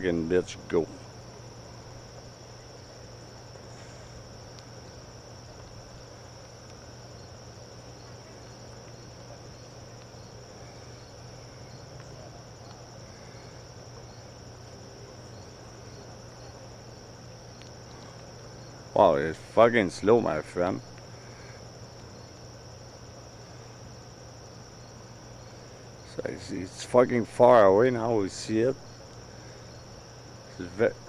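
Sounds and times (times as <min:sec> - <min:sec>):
crickets chirring: 0:00.0 - 0:31.0
faint low hum: 0:00.0 - 0:31.0.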